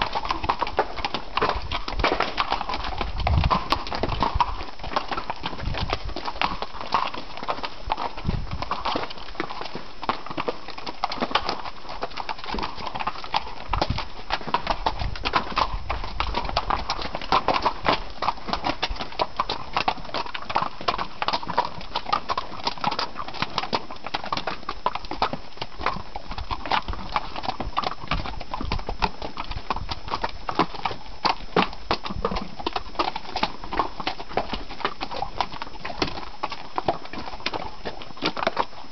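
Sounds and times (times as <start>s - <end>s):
mule hooves clip-clopping on rocks: 0.0s - 38.9s.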